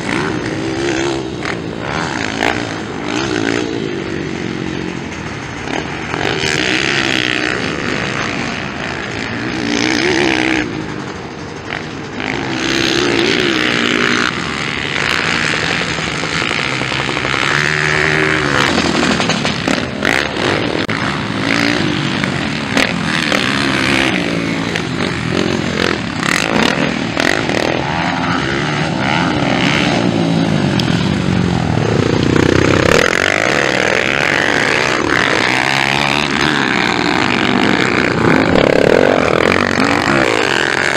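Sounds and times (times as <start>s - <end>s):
dirt bike engines revving: 0.0s - 40.9s.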